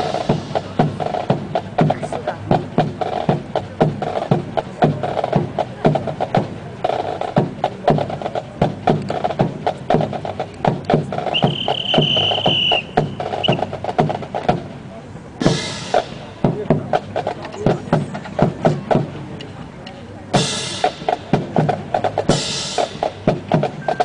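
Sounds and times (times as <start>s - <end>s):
marching drums cadence: 0.0s - 24.0s
high whistle-like tone: 11.3s - 13.6s.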